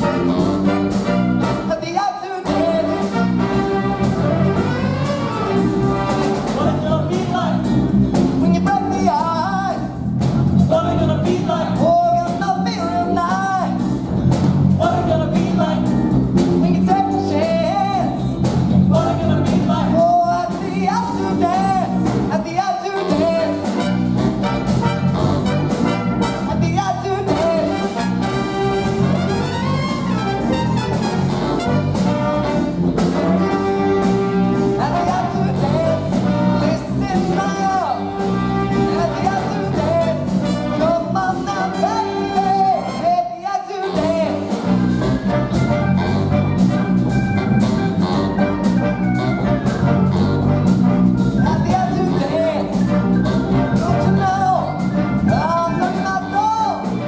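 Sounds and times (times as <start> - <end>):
big band playing live: 0.0 - 57.0
bending sliding melody line: 23.1 - 43.1, 44.0 - 57.0.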